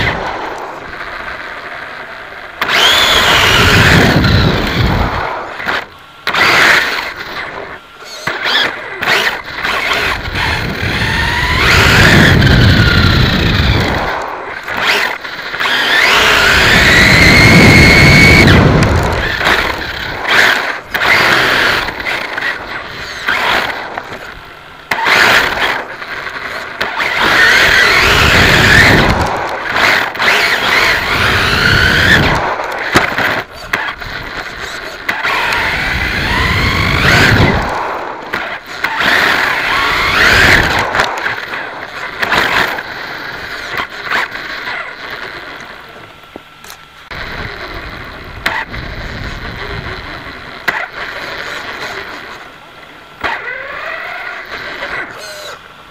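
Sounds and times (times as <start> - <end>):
electric motor and gear whine: 0.0 - 55.9
tyre and wind rumble: 2.7 - 5.8, 9.1 - 15.0, 15.6 - 24.5, 27.1 - 38.2.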